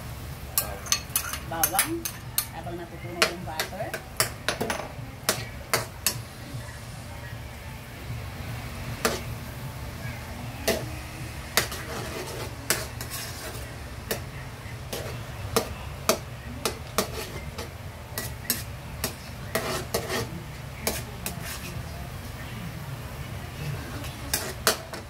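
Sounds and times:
spatula scraping metal wok: 0.6 - 6.4, 8.9 - 9.3, 10.2 - 22.0, 23.8 - 25.0
garlic sizzling in butter: 8.6 - 21.9, 23.7 - 25.0.

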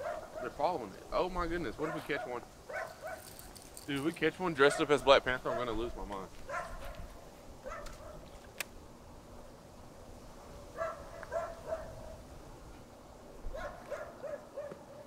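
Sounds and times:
dog barking: 0.0 - 0.6, 1.8 - 3.3, 4.6 - 5.8, 6.5 - 8.2, 10.8 - 12.2, 13.5 - 15.0.

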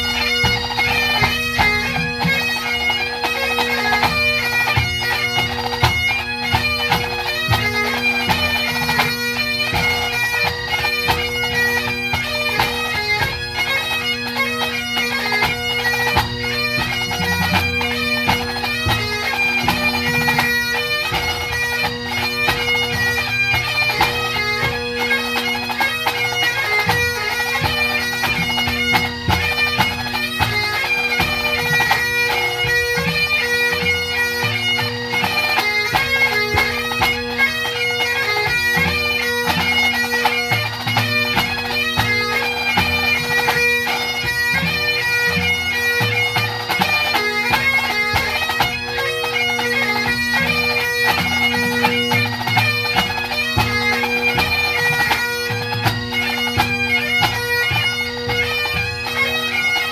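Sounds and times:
bagpipe band playing: 0.0 - 59.9.

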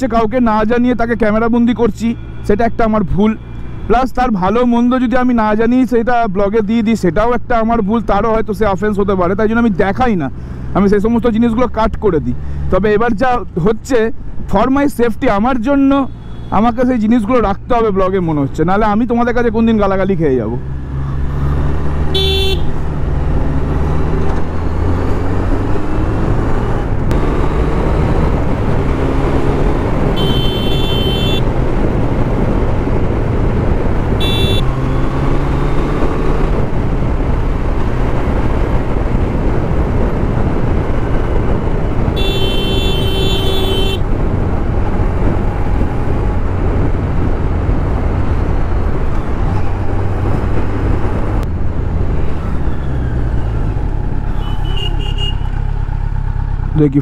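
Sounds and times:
road and wind rumble: 0.0 - 57.0
motorcycle engine accelerating: 20.7 - 56.8
horns tooting: 22.1 - 22.8, 30.1 - 31.5, 34.2 - 35.1, 42.1 - 44.1, 54.3 - 55.7.

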